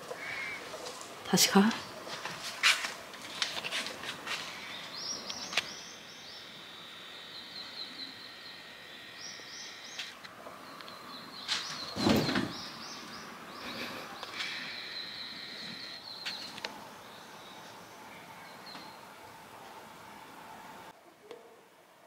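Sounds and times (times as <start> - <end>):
small birds chirping: 4.3 - 19.1.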